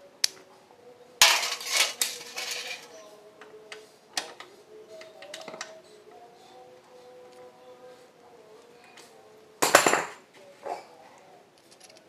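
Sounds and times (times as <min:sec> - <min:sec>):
metal engine parts clinking: 0:01.2 - 0:02.9
metal parts scraping and rattling: 0:01.2 - 0:02.9, 0:11.6 - 0:12.0.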